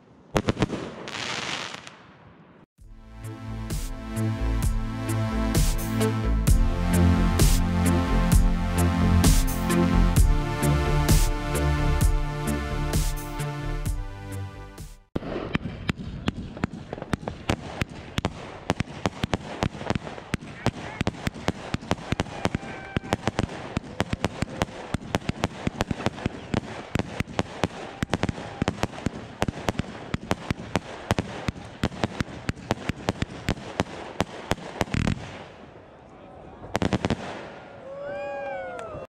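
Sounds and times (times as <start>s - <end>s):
electronic music: 2.8s - 15.1s.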